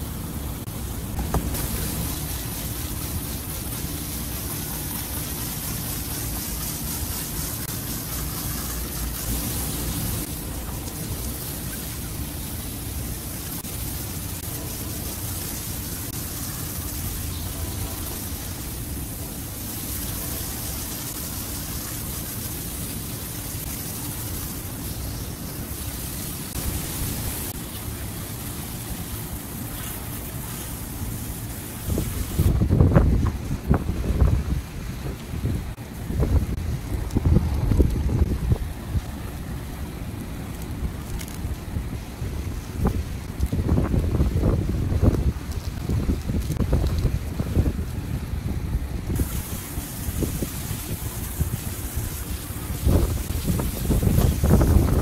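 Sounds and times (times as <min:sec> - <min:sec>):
low steady hum: 0:00.0 - 0:55.0
water hissing from hose nozzle: 0:00.8 - 0:32.6, 0:49.2 - 0:55.0.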